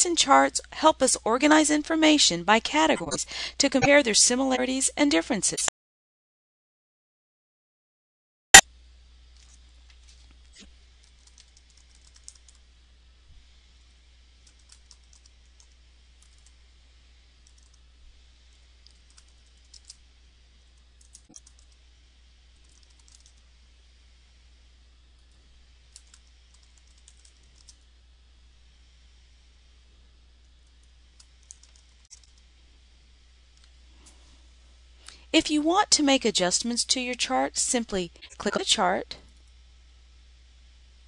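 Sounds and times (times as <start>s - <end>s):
low steady hum: 0.0s - 5.7s, 8.6s - 41.0s
keyboard typing: 21.0s - 21.7s, 26.0s - 27.8s, 31.4s - 32.4s.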